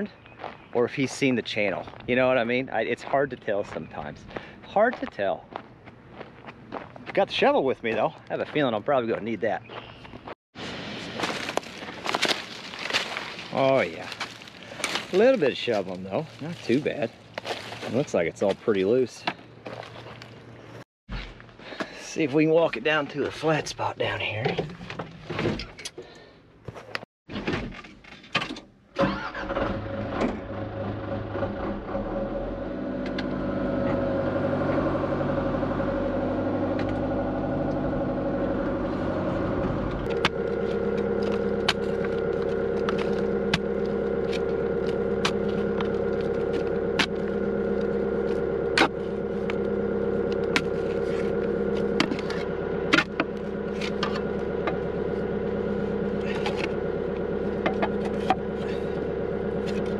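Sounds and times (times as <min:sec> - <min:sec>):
excavator diesel engine: 0:29.0 - 0:59.9.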